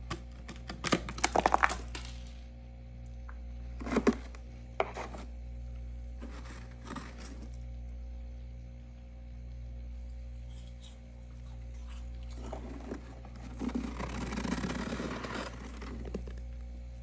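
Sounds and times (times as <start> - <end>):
steady low hum: 0.0 - 17.0
hand scraping freezer frost: 3.8 - 5.4, 6.2 - 7.6, 10.5 - 16.5.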